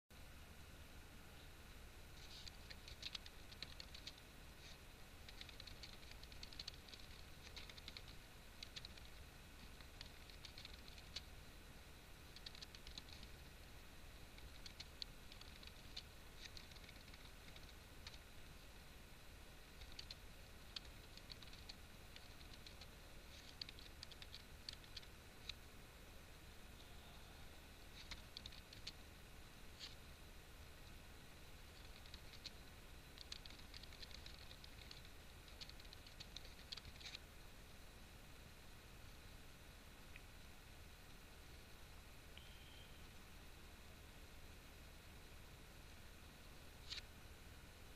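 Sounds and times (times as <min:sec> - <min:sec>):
typing on computer keyboard: 0:02.4 - 0:04.2, 0:05.2 - 0:11.3, 0:12.4 - 0:13.3, 0:14.4 - 0:18.2, 0:19.8 - 0:25.6, 0:28.0 - 0:29.0, 0:31.8 - 0:32.5, 0:33.2 - 0:37.2.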